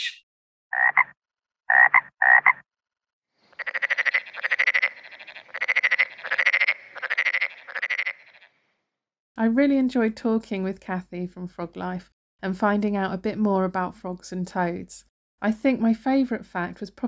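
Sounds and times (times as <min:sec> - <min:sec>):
frogs croaking and trilling: 0:00.7 - 0:02.6, 0:03.4 - 0:08.7.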